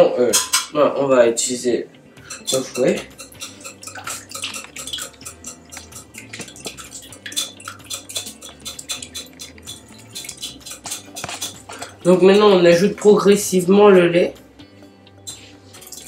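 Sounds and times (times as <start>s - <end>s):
whisk clicking against glass bowl: 2.3s - 12.4s.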